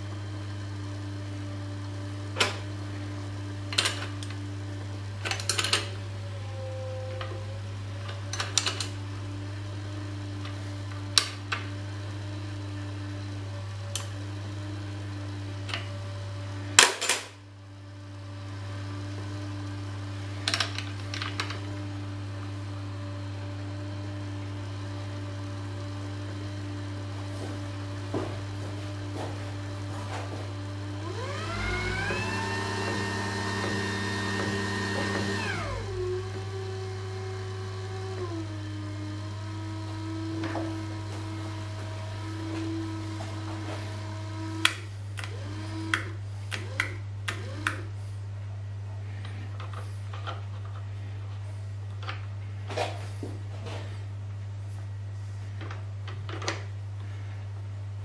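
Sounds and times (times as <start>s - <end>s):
steady electrical hum: 0.0s - 58.0s
electric gear motor whining: 30.8s - 47.9s.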